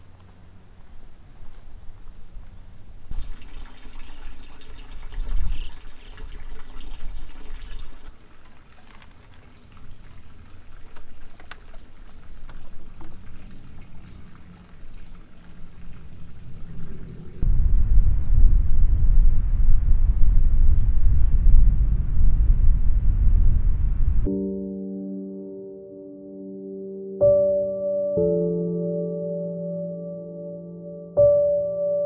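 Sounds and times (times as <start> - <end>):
water dripping: 3.1 - 17.5
water pouring: 3.1 - 17.5.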